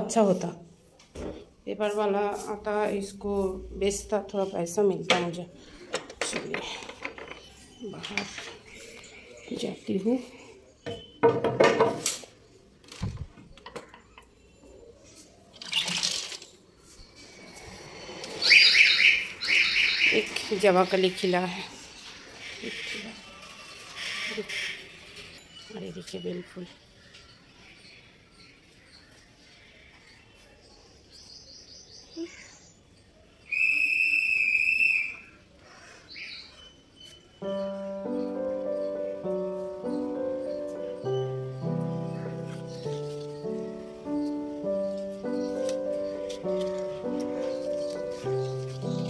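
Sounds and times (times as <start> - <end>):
high whistle-like tone: 18.4 - 20.2, 33.5 - 35.3.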